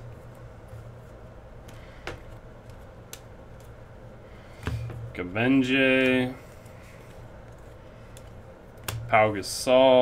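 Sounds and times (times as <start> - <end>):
steady low hum: 0.0 - 10.0
cards clicking and sliding: 1.6 - 3.8, 5.9 - 9.0.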